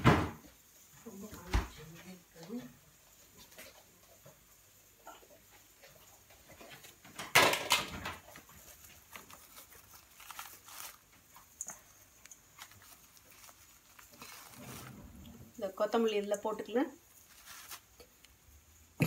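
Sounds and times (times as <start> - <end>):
soft clicks and rustles: 1.2 - 15.6
rustle and clatter: 1.3 - 16.5.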